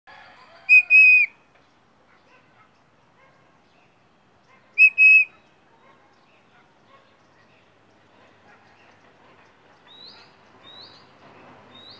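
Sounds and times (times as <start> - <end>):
songbird whistling: 0.7 - 1.4, 4.8 - 5.4.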